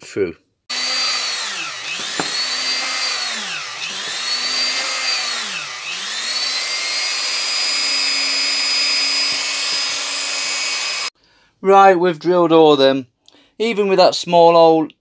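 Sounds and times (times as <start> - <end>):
electric drill whining: 0.7 - 11.2.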